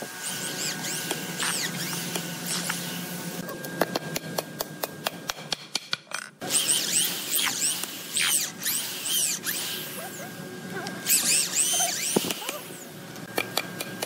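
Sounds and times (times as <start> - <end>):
cordless drill boring into wood: 0.2 - 2.9, 6.4 - 10.0, 11.0 - 12.8.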